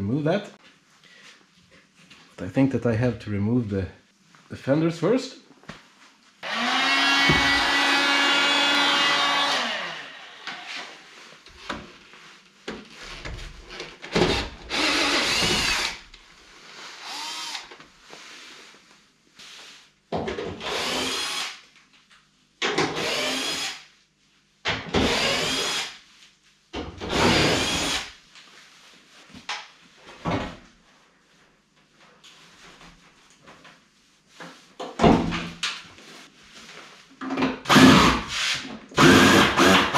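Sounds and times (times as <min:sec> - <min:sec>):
cordless drill whirring: 0:06.4 - 0:10.9, 0:14.2 - 0:16.0, 0:16.9 - 0:17.7, 0:20.6 - 0:21.6, 0:23.0 - 0:23.8, 0:25.0 - 0:26.0, 0:27.1 - 0:28.1, 0:39.0 - 0:39.9.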